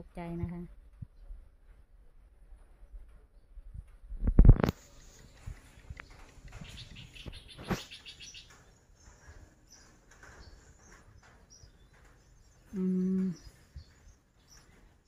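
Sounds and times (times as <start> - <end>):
bird chirps: 4.9 - 15.0.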